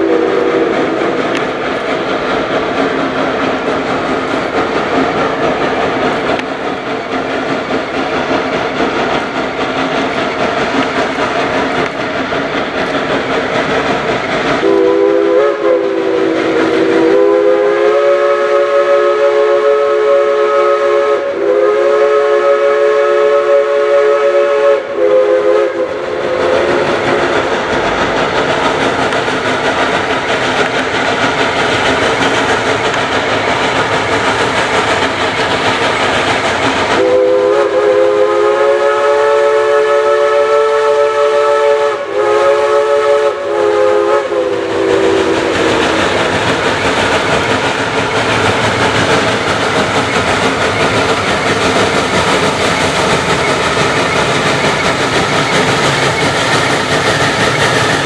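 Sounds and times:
steam locomotive chime whistle: 0.0s - 1.5s, 14.6s - 27.2s, 36.9s - 46.3s
steam engine hissing exhaust: 0.0s - 58.0s.

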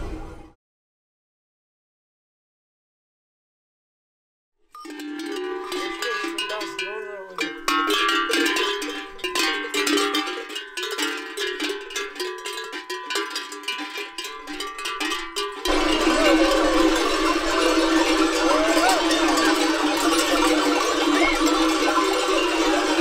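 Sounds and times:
bells clanking and jingling: 4.7s - 23.0s
sustained low tones: 15.7s - 23.0s.

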